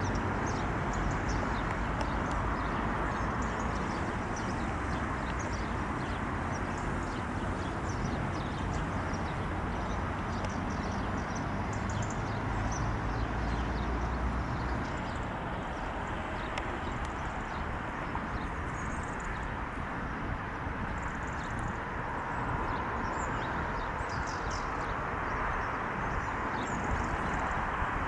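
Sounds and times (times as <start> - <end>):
small birds chirping: 0.0 - 19.5.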